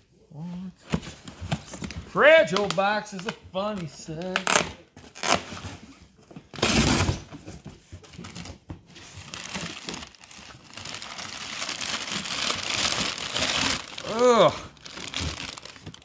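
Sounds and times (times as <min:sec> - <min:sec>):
packing paper crinkling: 0:08.1 - 0:16.0.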